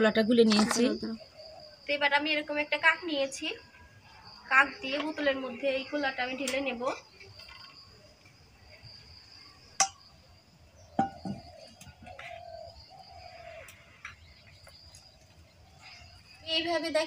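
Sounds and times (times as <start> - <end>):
dove cooing: 1.0 - 1.8, 11.0 - 13.7
steel bowl and spoon clinks: 9.8 - 10.0.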